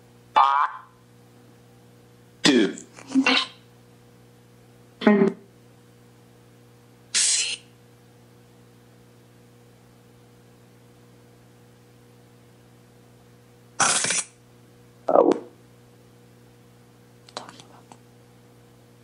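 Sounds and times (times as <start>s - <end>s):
steady low hum: 0.0s - 19.0s
chopped bursts of hissy noise: 7.1s - 7.6s.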